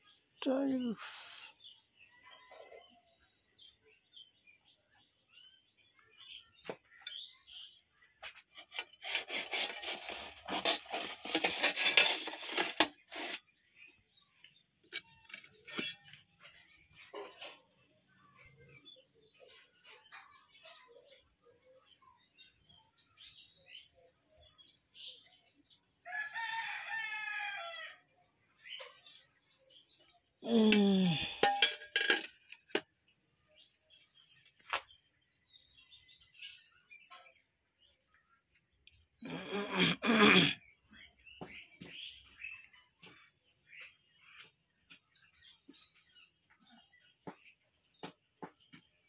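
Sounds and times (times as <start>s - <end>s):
tiles and cardboard boxes scraping: 8.2s - 13.6s
rooster crowing: 26.1s - 28.0s.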